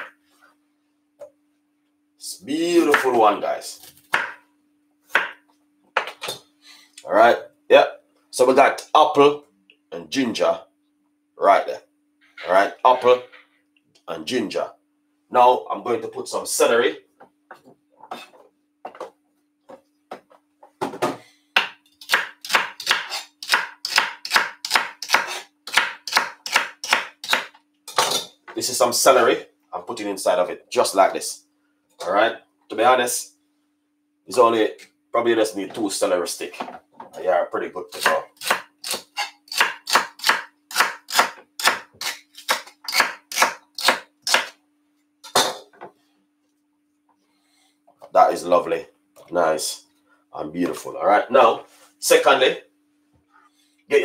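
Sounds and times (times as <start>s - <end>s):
knife chopping on wooden board: 4.1s - 4.4s, 5.1s - 5.4s, 21.6s - 27.5s, 37.9s - 44.5s.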